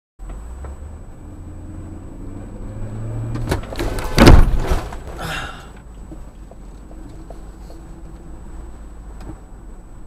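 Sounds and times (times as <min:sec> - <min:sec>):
car engine hum: 0:00.2 - 0:10.0
car collision crunch: 0:03.3 - 0:05.8.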